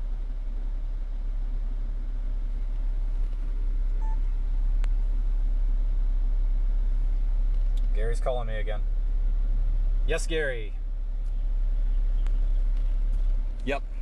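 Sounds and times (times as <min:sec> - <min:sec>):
steady low rumble: 0:00.0 - 0:14.0
mobile phone beep: 0:04.0 - 0:04.3.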